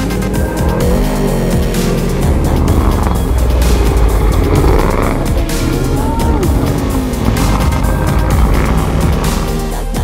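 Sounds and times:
race truck engine running hard: 0.0 - 10.0.

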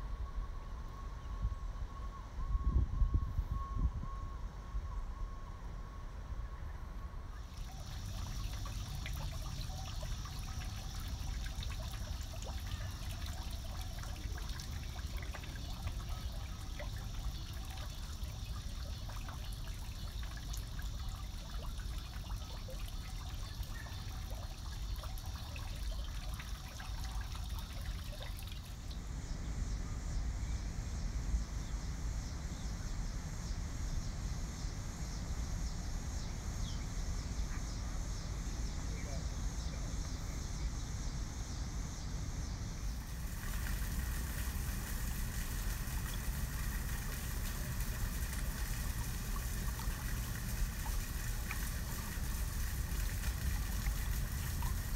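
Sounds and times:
steady high hiss: 7.2 - 54.9
fountain water splashing into basin: 7.4 - 29.0, 42.8 - 54.9.

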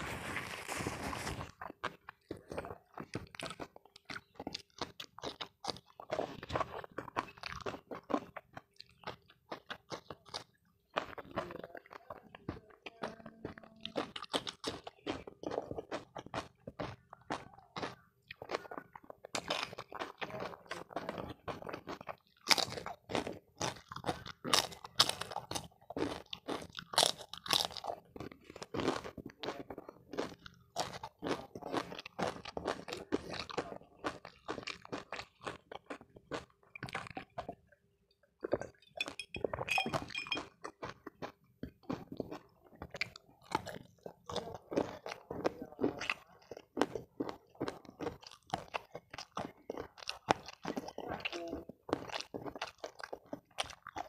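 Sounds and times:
chewing and crunching: 0.0 - 54.0.

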